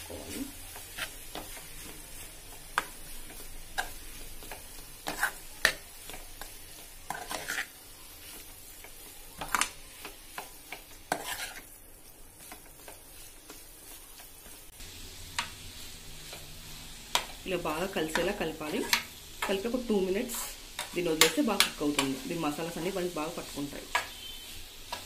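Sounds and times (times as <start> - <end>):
faint frying sizzle: 0.0 - 25.0
metal spatula scraping steel pan: 0.8 - 1.6, 5.0 - 5.8, 7.1 - 7.8, 11.0 - 11.7.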